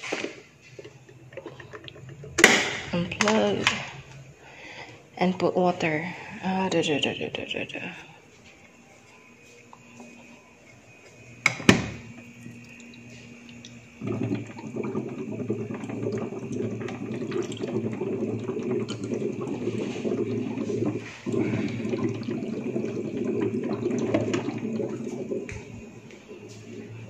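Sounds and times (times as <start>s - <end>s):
water running into plastic cup: 11.1s - 26.9s.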